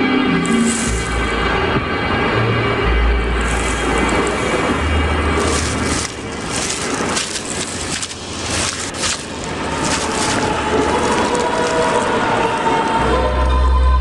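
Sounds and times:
rustling in dry grass: 0.4s - 1.4s, 3.3s - 13.0s.

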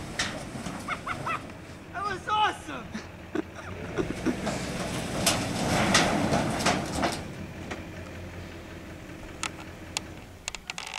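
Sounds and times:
sheet metal scraping over dirt: 0.0s - 1.9s, 3.8s - 7.8s
diesel truck engine hum: 0.0s - 10.9s.

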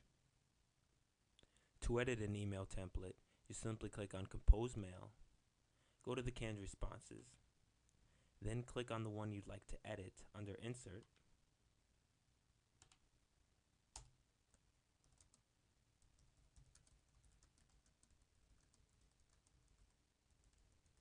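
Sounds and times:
typing on computer keyboard: 12.8s - 13.0s, 13.9s - 15.4s, 16.0s - 21.0s.

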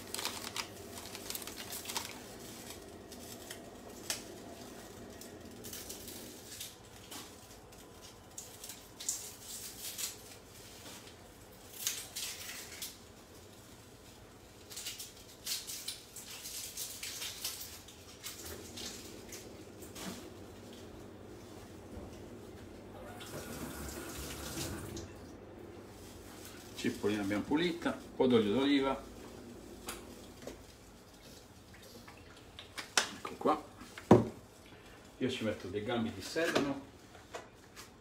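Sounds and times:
faint steady hum: 17.0s - 36.2s.

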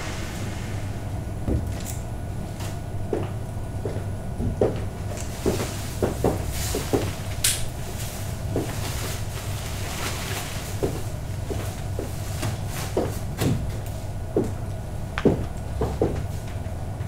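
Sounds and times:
brief high hiss: 0.0s - 1.4s
low rumble: 0.0s - 3.8s
footsteps on hollow wooden floor: 2.6s - 9.3s, 10.3s - 14.6s, 15.2s - 16.6s.

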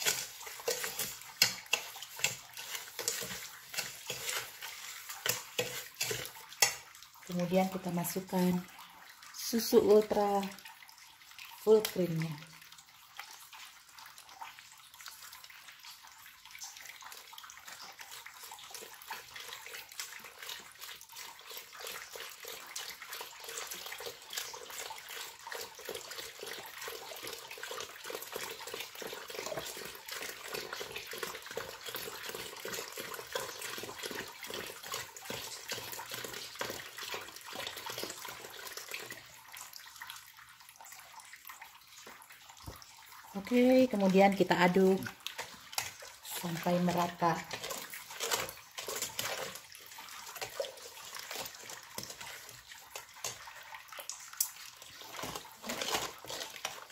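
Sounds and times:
milk pouring into metal pot: 0.0s - 9.4s, 10.0s - 56.9s.

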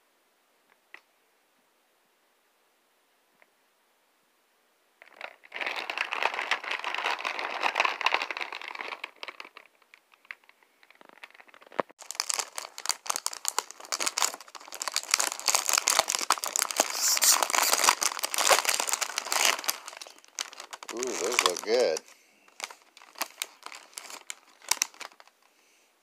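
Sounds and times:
plastic wrapper crinkling: 5.0s - 25.5s.

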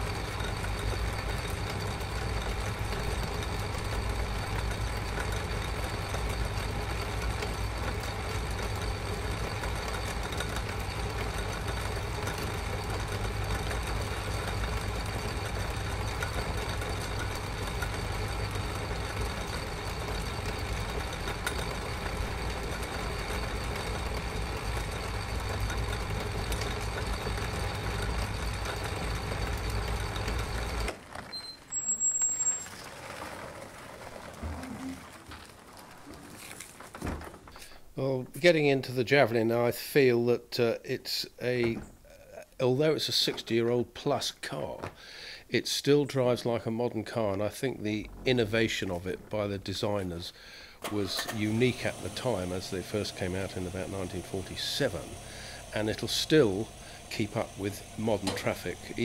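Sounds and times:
metal lathe running: 0.0s - 38.0s, 45.9s - 59.0s
wooden door squeaking open: 31.0s - 37.9s.

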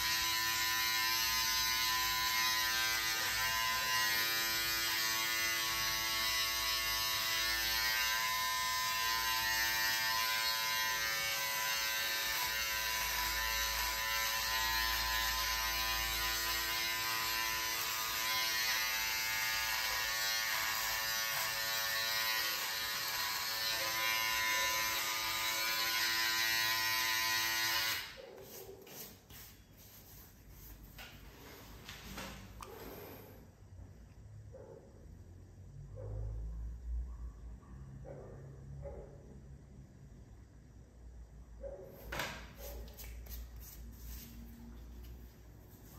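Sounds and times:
beard trimmer buzzing: 0.0s - 28.2s.

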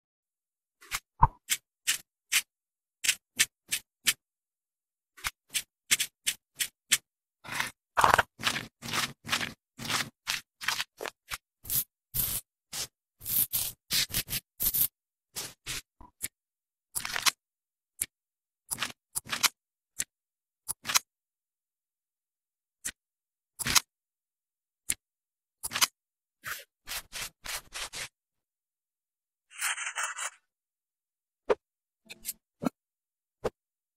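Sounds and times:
shaving scraping sound effects: 0.8s - 4.2s, 5.2s - 15.9s, 25.7s - 28.2s.

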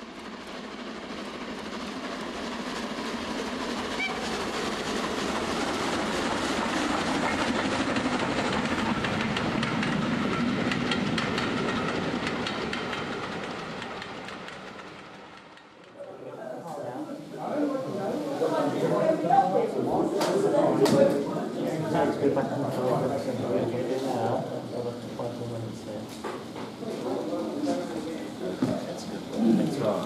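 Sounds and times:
model train rumbling on track: 0.0s - 30.0s
wheels clicking over rail joints: 3.0s - 16.2s.

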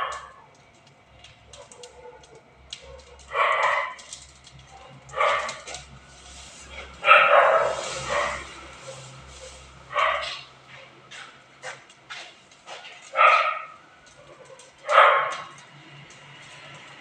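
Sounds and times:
dog barking: 0.0s - 0.4s, 1.5s - 4.1s, 5.1s - 5.8s, 7.0s - 10.5s, 12.9s - 15.6s
crackle of burning straw: 0.0s - 17.0s.

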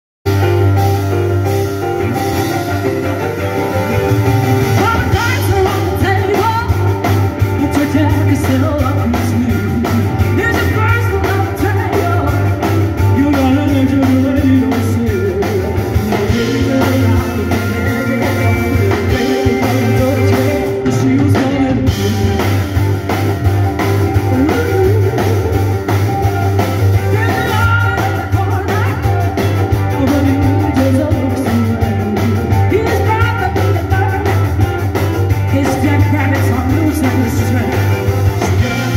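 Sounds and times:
boomy bass: 0.2s - 38.9s
drums: 0.2s - 38.9s
electric guitar: 0.2s - 38.9s
keyboards: 0.2s - 38.9s
woman singing: 4.8s - 7.0s, 7.6s - 12.6s, 24.2s - 26.0s, 27.0s - 34.5s.

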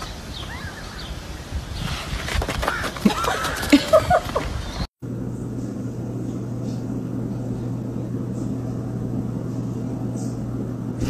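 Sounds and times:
steady low hum: 4.9s - 11.0s.

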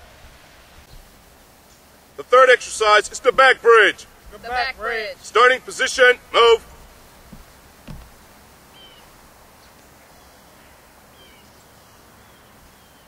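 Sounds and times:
steady low hiss: 0.0s - 13.0s
soft thumps: 6.5s - 9.4s
faint bird chirps: 8.2s - 13.0s.

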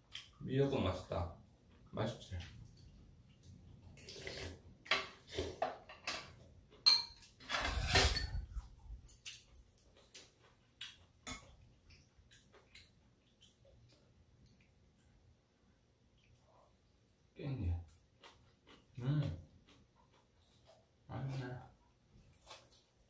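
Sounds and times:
tableware clatter: 4.9s - 9.5s
spoon and chopsticks tapping bowls: 6.8s - 7.3s.

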